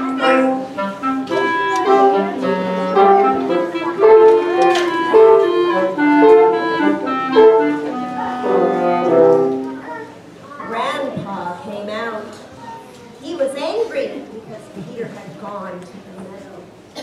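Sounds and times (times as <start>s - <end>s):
woodwind quintet playing: 0.0s - 9.8s.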